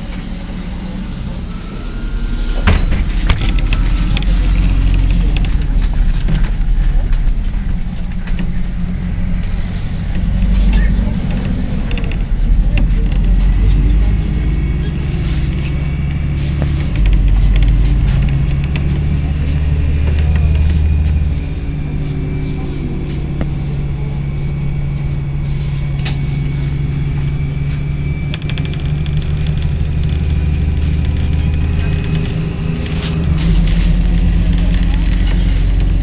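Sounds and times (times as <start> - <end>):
bus engine and road hum: 0.0 - 36.0.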